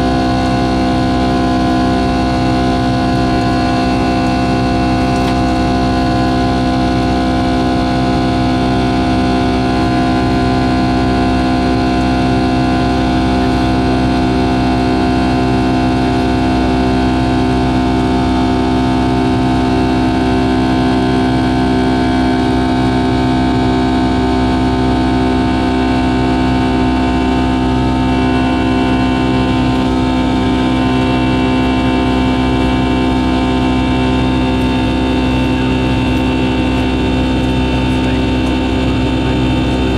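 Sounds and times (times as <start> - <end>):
jet engines droning: 0.0 - 39.9
high whining tones: 26.2 - 39.9.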